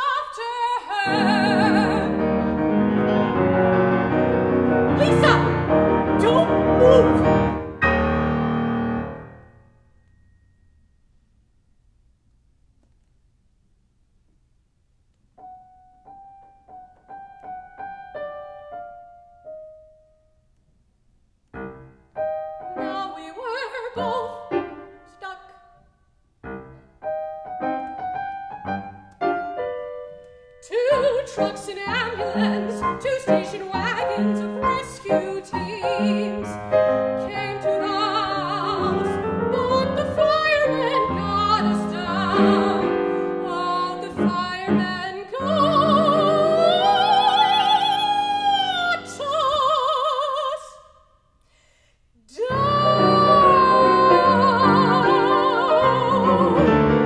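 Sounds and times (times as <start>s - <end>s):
woman singing opera: 0.0s - 2.4s, 5.0s - 5.6s, 6.2s - 7.5s, 22.8s - 24.5s, 25.1s - 25.8s, 30.6s - 51.0s, 52.3s - 57.0s
grand piano playing: 0.9s - 11.1s, 15.4s - 20.4s, 21.5s - 25.4s, 26.4s - 50.1s, 52.4s - 57.0s.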